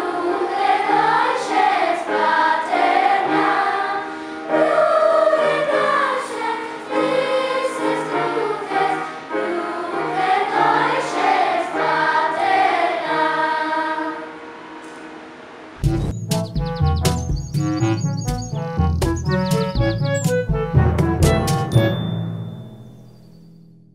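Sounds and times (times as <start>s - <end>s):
children's choir singing: 0.0s - 15.5s.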